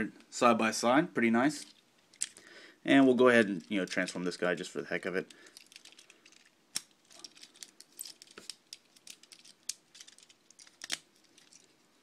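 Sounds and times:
plastic toy parts clicking: 0:01.7 - 0:02.4, 0:05.4 - 0:11.7.

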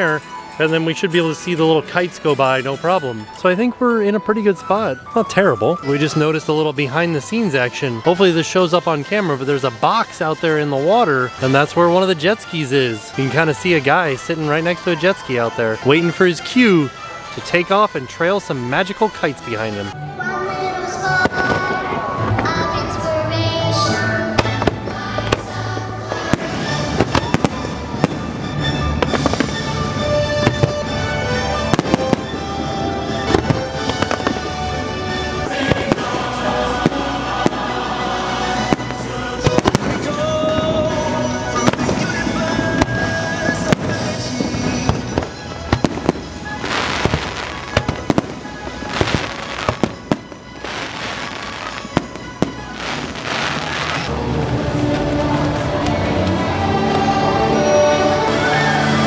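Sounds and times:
fireworks crackling: 0:00.0 - 0:20.0, 0:20.7 - 0:59.0
soundtrack music: 0:00.0 - 0:59.0
fireworks pops and bangs: 0:24.3 - 0:29.8, 0:30.4 - 0:31.0, 0:31.7 - 0:32.5, 0:33.1 - 0:34.6, 0:35.6 - 0:36.2, 0:38.6 - 0:40.7, 0:41.6 - 0:54.1.

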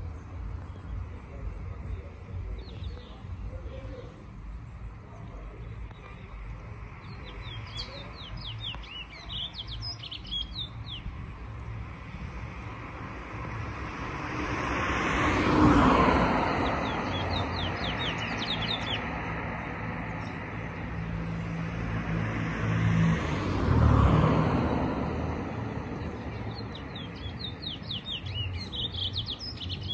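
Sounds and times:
passing vehicle: 0:00.0 - 0:29.9
finches chirping: 0:07.0 - 0:11.2, 0:16.6 - 0:19.2, 0:26.2 - 0:29.9.

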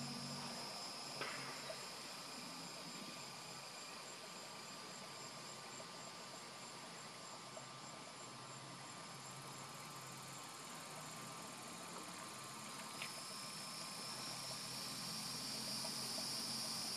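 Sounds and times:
insect chorus trilling: 0:00.0 - 0:16.9.

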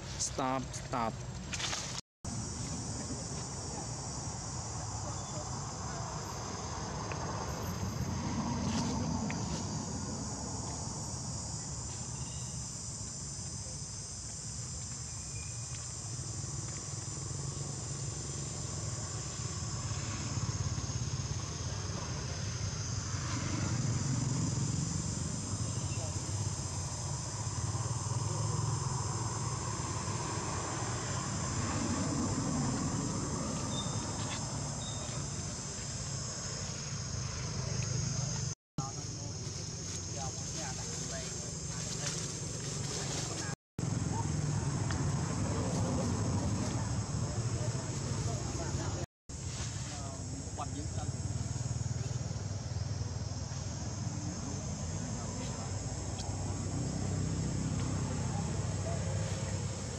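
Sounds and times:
high-pitched insect chorus: 0:00.0 - 0:59.9.

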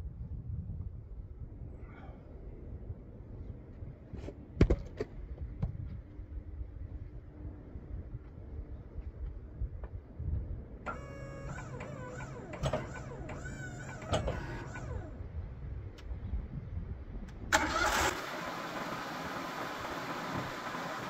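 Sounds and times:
sawmill engine running: 0:10.8 - 0:15.2.

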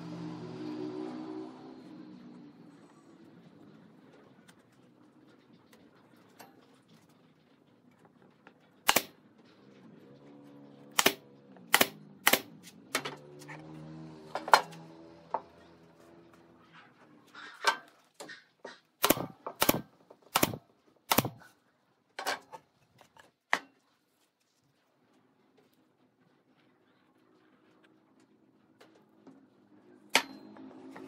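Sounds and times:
nail gun firing into wood: 0:08.8 - 0:09.2, 0:10.9 - 0:13.1, 0:19.0 - 0:21.5.

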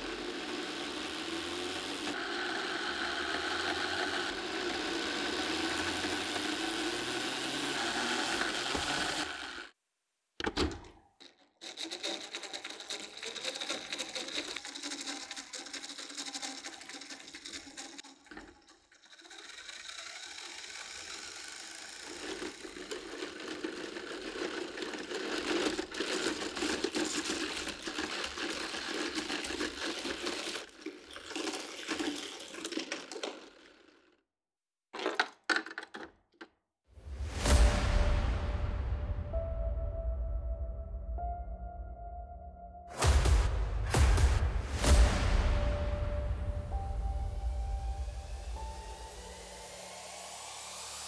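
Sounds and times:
toy treadmill mechanical clatter: 0:00.0 - 0:09.7, 0:10.6 - 0:34.2
plastic clacks: 0:10.4 - 0:19.8, 0:34.9 - 0:36.6.

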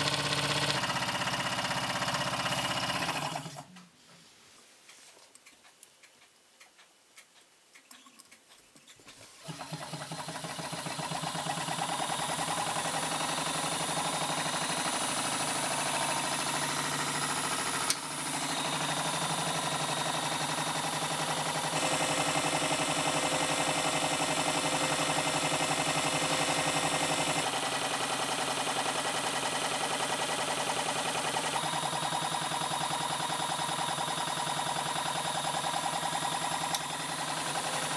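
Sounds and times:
small engine whirring and ticking: 0:00.0 - 0:03.7, 0:09.4 - 0:37.9
faint clicks: 0:04.9 - 0:09.0.

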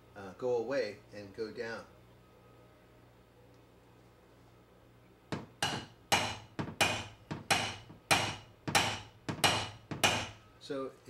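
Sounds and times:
hammer striking metal tool: 0:05.3 - 0:10.4.

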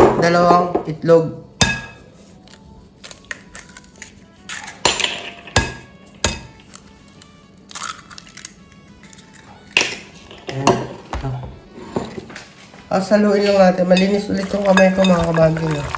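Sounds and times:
eggs cracking on glass bowl: 0:07.7 - 0:10.2.

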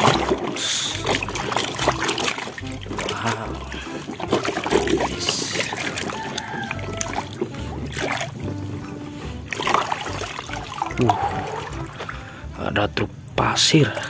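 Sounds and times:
hand scrubbing toy in water: 0:00.0 - 0:12.6
water sloshing in a basin: 0:00.0 - 0:12.7, 0:13.7 - 0:14.0.

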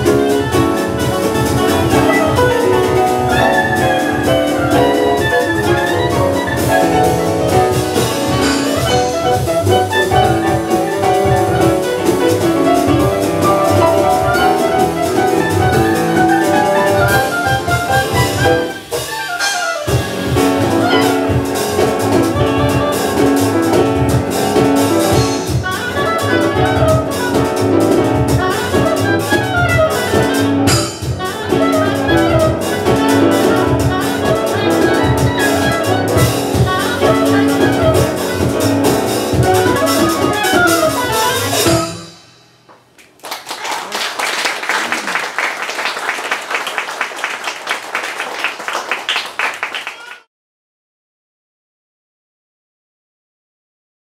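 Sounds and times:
jazz band playing fast tune: 0:00.0 - 0:42.6, 0:43.5 - 0:50.3
audience applause: 0:43.0 - 0:50.3.

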